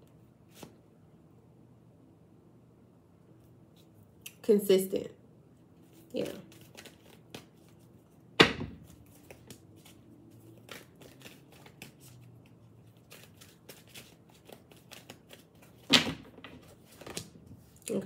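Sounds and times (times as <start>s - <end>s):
cards being shuffled: 0.4s - 0.8s, 5.9s - 8.1s, 8.7s - 17.8s.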